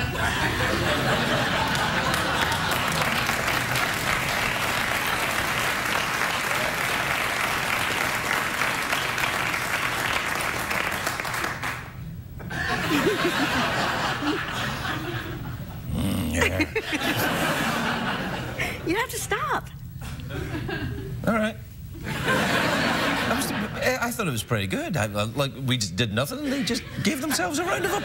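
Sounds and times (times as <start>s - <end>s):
bursts of laughter: 0.0s - 3.4s, 12.5s - 18.8s
audience applauding: 0.0s - 12.0s.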